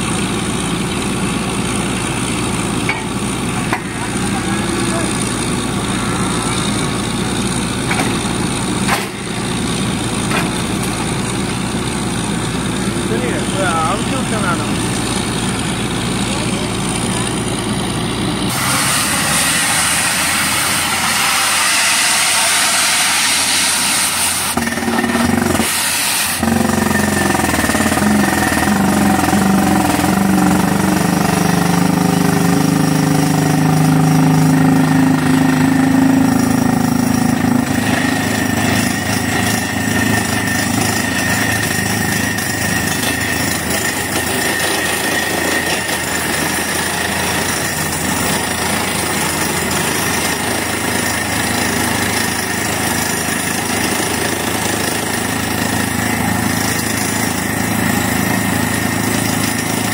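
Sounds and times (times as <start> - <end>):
drilling rig engine drone: 0.0 - 59.9
rapid hammering of drill: 36.2 - 59.9.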